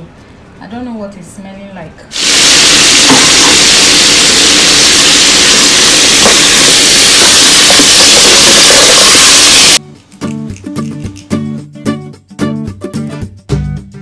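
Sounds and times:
food sizzling in a pot: 0:02.1 - 0:09.8.

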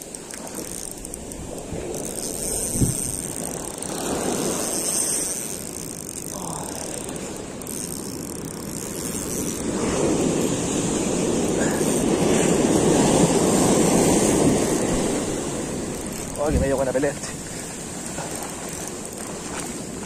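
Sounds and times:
fishing reel gears ticking: 0:00.0 - 0:20.0
surf washing up beach: 0:09.6 - 0:20.0.

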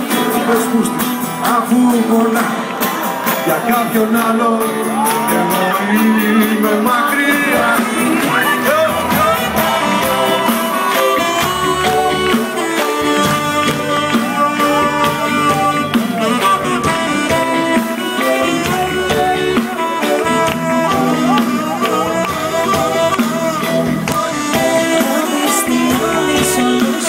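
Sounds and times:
drums beating: 0:00.0 - 0:27.0
rock band playing live: 0:00.0 - 0:27.0.

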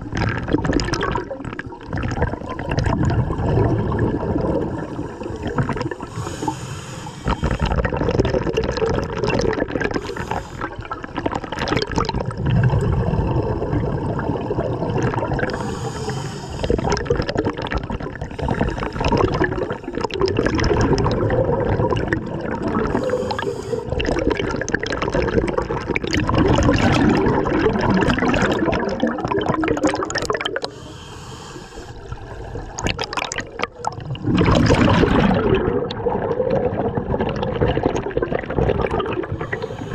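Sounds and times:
gurgling exhaled bubbles: 0:00.0 - 0:31.0, 0:31.9 - 0:39.9
hissing regulator inhalations: 0:05.1 - 0:07.8, 0:10.0 - 0:11.0, 0:15.5 - 0:16.9, 0:22.9 - 0:24.0, 0:30.6 - 0:32.2, 0:39.3 - 0:39.9.

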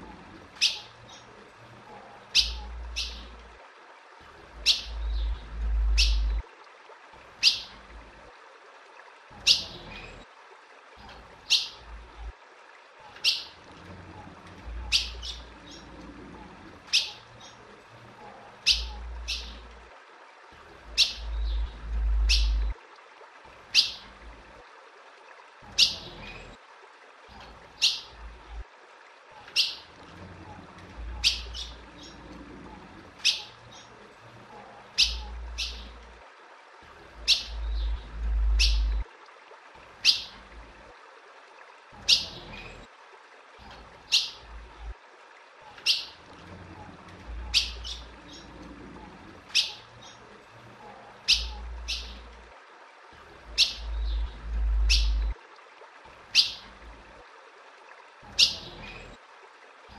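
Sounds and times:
bird calling: 0:02.3 - 0:03.3, 0:04.6 - 0:06.4, 0:18.6 - 0:19.6, 0:20.9 - 0:22.7, 0:31.1 - 0:32.3, 0:34.9 - 0:36.0, 0:37.2 - 0:39.0, 0:51.2 - 0:52.2, 0:53.5 - 0:55.3, 0:56.3 - 0:56.7
low rumble: 0:05.0 - 0:06.4, 0:37.5 - 0:39.0, 0:53.9 - 0:55.4.

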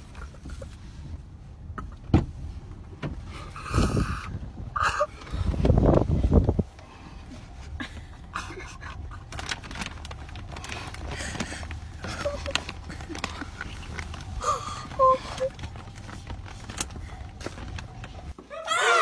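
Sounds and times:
child crying: 0:18.5 - 0:19.0.

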